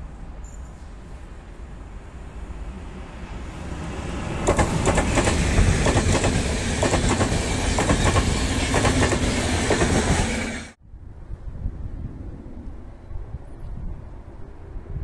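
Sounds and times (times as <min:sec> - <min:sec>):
locomotive approaching: 0:00.6 - 0:10.8
train wheels clickety-clack: 0:04.3 - 0:10.5.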